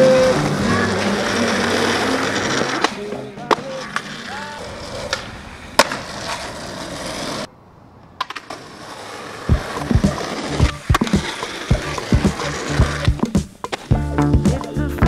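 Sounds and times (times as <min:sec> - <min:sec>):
skateboard wheels rolling on pavement: 0:00.0 - 0:14.4
skateboard snaps: 0:05.0 - 0:06.7, 0:08.0 - 0:08.6.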